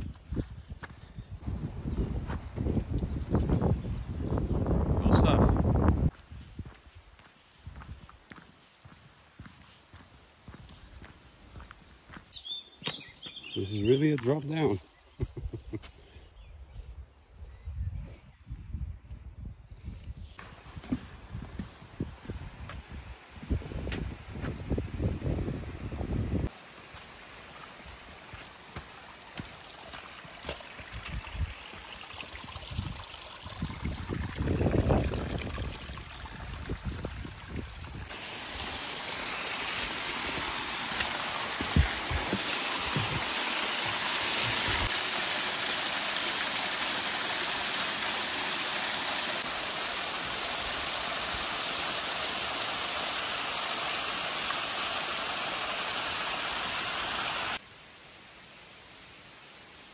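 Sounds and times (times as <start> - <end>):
footsteps on stony path: 0.0 - 3.7, 6.1 - 14.5, 26.9 - 31.4, 39.6 - 44.9
small waterfall splashing: 26.5 - 57.6.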